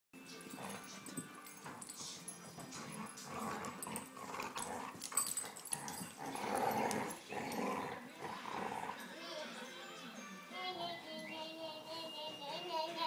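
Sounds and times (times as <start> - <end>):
dogs scuffling: 0.4 - 8.0
dogs growling: 0.4 - 9.2.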